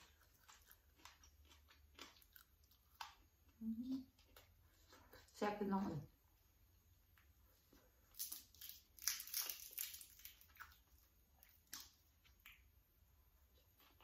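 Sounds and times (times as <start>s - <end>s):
crisp crackles of charred fish: 8.1s - 11.0s.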